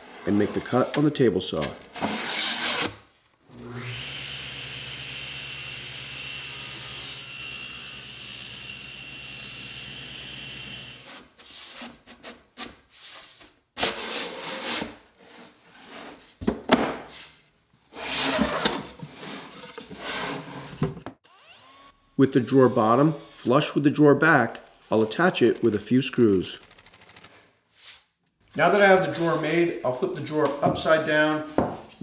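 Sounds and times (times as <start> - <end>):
table saw whining: 3.5 - 11.2, 18.0 - 26.8.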